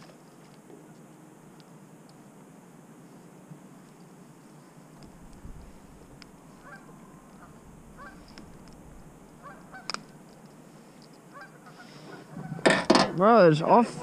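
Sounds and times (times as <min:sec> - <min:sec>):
faint short bird calls: 0:06.5 - 0:08.4, 0:09.4 - 0:10.2.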